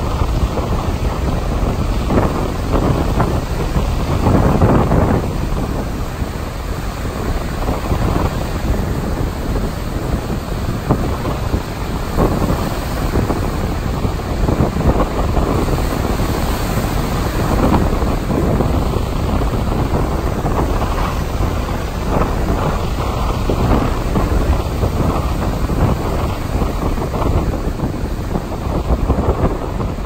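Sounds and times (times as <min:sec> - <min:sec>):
breaking surf: 0:00.0 - 0:30.0
wind gusting on microphone: 0:00.0 - 0:30.0.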